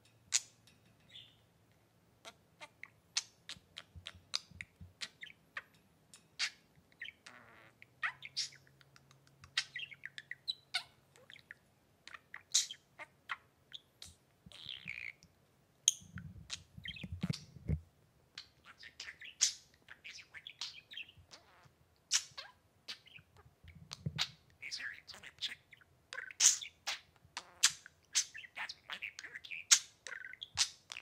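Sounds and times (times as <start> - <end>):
budgerigar chirping: 6.4 - 8.7, 9.5 - 15.2, 18.4 - 23.4, 24.0 - 31.0.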